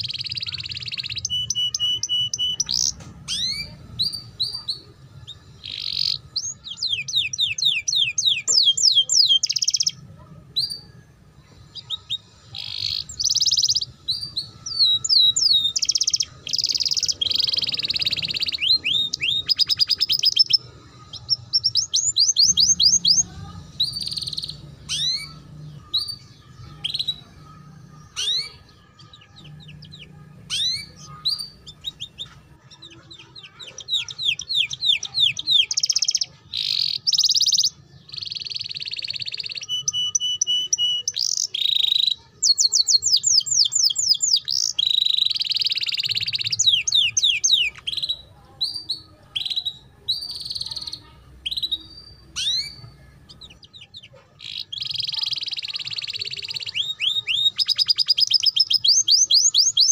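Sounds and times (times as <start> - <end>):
canary singing: 0.0 - 59.9.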